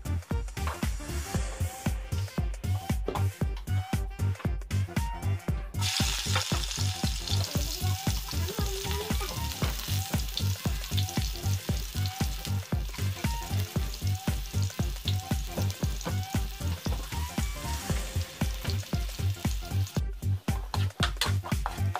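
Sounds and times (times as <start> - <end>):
background music with beat: 0.0 - 21.9
garlic sizzling in hot oil: 5.8 - 20.8.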